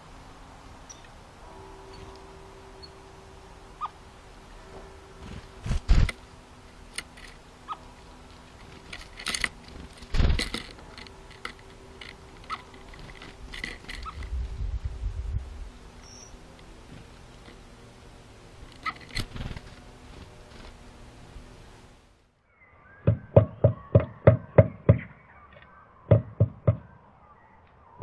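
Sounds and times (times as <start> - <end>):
faint steady hum: 0.0 - 28.0
bird wing flutters: 5.2 - 6.3, 7.2 - 14.6, 16.8 - 17.6, 18.6 - 21.0
faint bird chirps: 16.0 - 16.4, 22.4 - 28.0.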